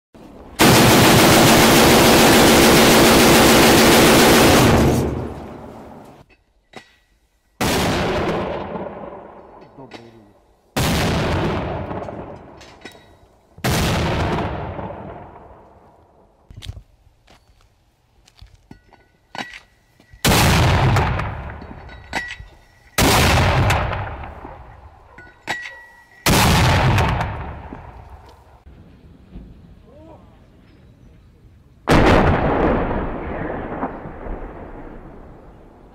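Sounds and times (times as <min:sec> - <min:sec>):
grenade launcher automatic fire: 0:00.6 - 0:06.1, 0:07.6 - 0:09.2, 0:10.8 - 0:12.5, 0:13.6 - 0:15.5, 0:20.3 - 0:21.6, 0:23.0 - 0:24.4, 0:26.3 - 0:27.7, 0:31.9 - 0:35.4
loud blast: 0:00.6 - 0:06.2, 0:31.9 - 0:35.9.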